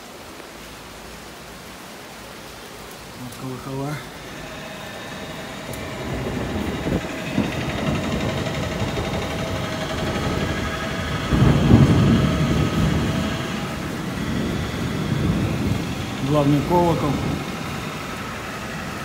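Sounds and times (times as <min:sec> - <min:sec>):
steady wavering hum: 0:03.7 - 0:19.0
wind buffeting microphone: 0:04.1 - 0:19.0.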